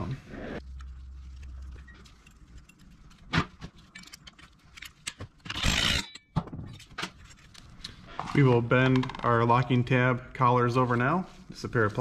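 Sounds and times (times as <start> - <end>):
metal parts and tools clinking: 3.8 - 7.6.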